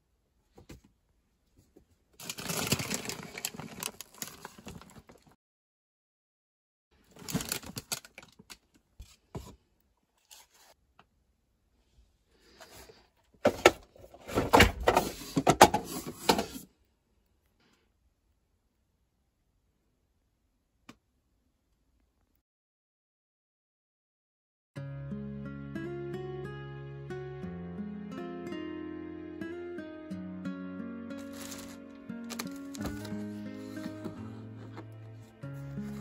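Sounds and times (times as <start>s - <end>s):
plastic and paper bags crinkling: 2.2s - 5.4s, 7.0s - 8.8s, 13.5s - 16.6s, 31.2s - 36.0s.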